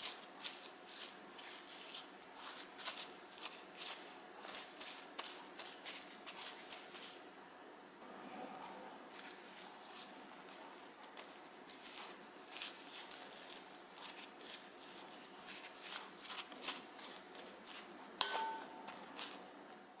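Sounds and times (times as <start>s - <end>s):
wet sticky leaves crackling: 0.0s - 7.2s, 8.6s - 19.6s
spoon clinking on glass bowl: 18.2s - 18.8s.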